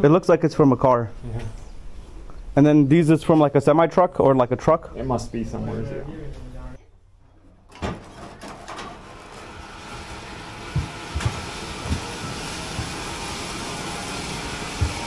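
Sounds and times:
dull thumps: 10.7s - 13.0s.

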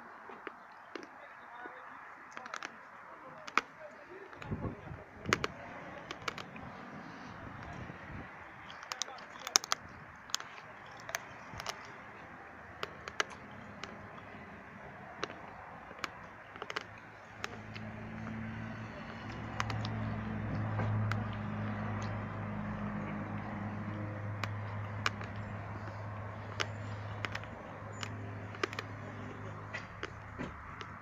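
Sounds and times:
sharp clicks: 0.3s - 1.2s, 2.3s - 31.0s
low engine hum: 9.8s - 31.0s.

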